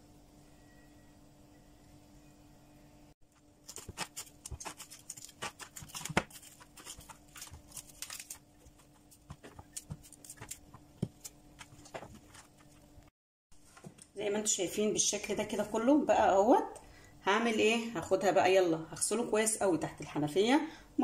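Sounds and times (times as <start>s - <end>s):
cauliflower florets snapping: 3.6s - 11.3s.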